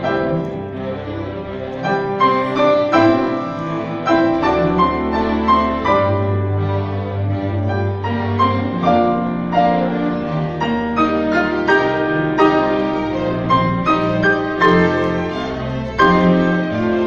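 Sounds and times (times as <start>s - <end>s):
held string notes: 0.0s - 17.0s
piano melody: 0.0s - 17.0s.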